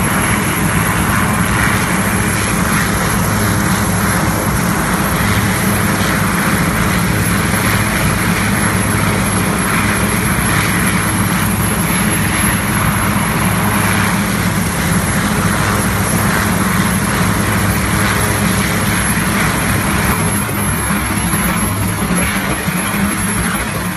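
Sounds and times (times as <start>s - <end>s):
helicopter engine drone: 0.0s - 23.9s.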